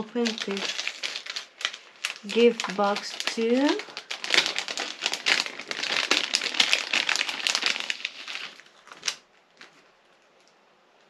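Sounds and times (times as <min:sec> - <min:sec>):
packaging crinkling: 0:00.0 - 0:10.5.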